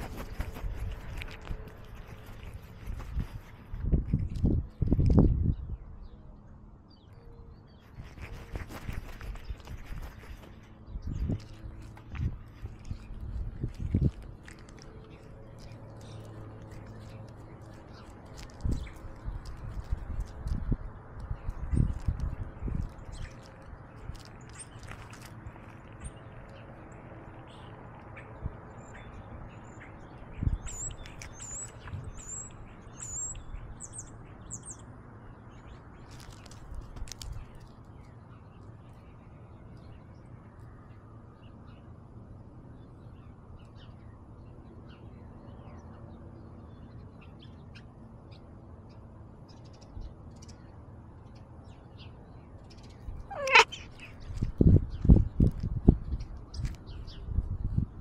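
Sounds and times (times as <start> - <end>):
bird chirping: 25.8 - 36.6, 42.8 - 57.4.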